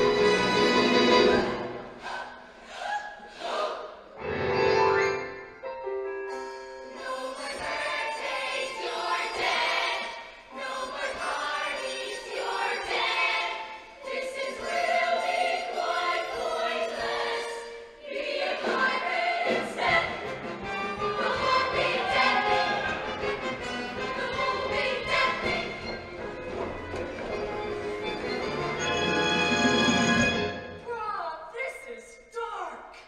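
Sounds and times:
choir singing in harmony: 0.0 - 5.2, 6.3 - 26.4.

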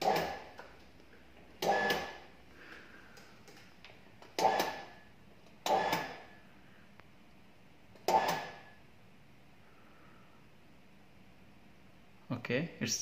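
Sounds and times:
machine mechanical bursts: 0.0 - 0.6, 1.6 - 2.3, 4.2 - 5.0, 5.6 - 6.3, 7.9 - 8.8.

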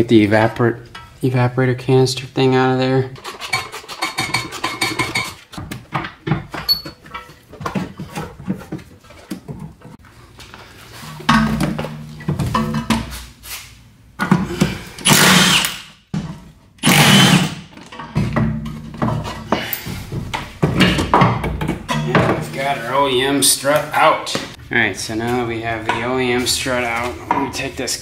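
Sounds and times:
power tool bursts: 15.0 - 15.9, 16.8 - 17.6.

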